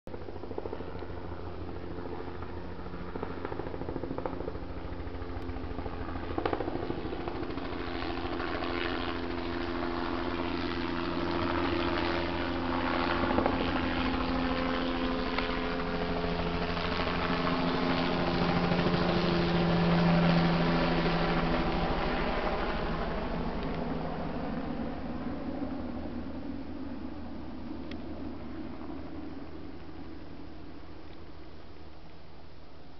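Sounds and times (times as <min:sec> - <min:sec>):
helicopter flying overhead: 0:00.1 - 0:32.9.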